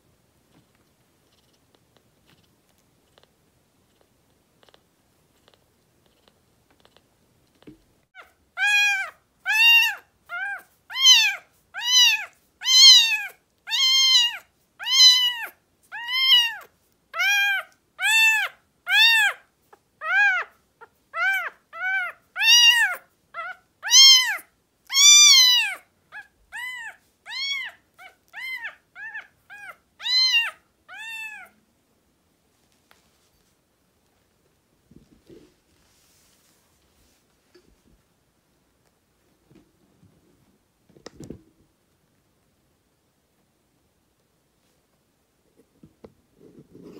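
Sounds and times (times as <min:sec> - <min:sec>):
kitten mewing: 0:08.2 - 0:19.4, 0:21.2 - 0:31.6.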